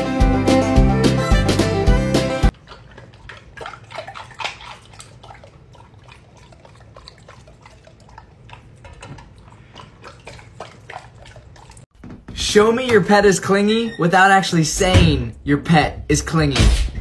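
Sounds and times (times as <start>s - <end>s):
dog lapping water from metal bowl: 2.5s - 11.9s.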